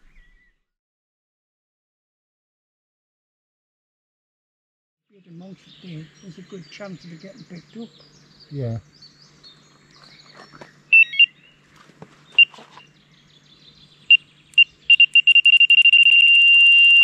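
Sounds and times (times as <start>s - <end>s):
bite alarm bleeping: 10.9s - 11.3s, 14.1s - 17.0s.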